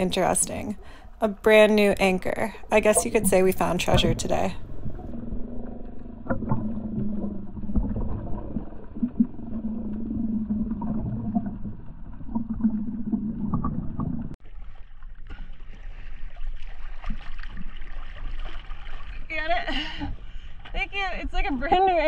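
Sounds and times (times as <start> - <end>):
low underwater hum: 0.0 - 20.8
murky underwater water noise: 0.0 - 21.7
sea water splashing against hull: 2.1 - 19.5.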